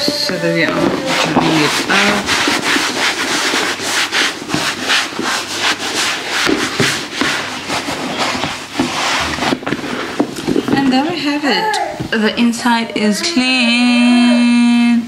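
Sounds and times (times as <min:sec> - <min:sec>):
cloth rubbing on plastic shell: 0:00.0 - 0:11.4.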